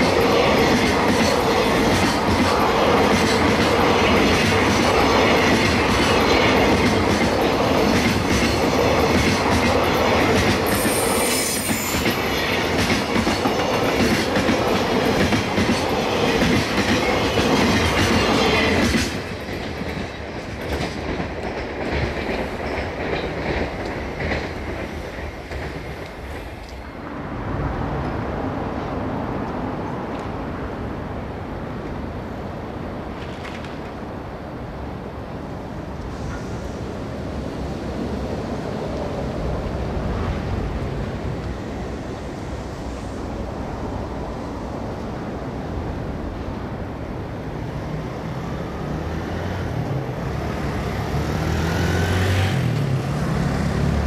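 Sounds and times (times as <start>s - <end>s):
freight train rumbling past: 0.0s - 54.0s
train wheel screech: 10.2s - 13.3s.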